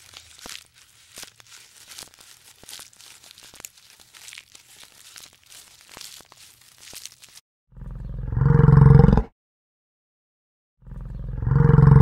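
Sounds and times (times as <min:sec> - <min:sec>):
crackling and rustling: 0:00.0 - 0:07.4.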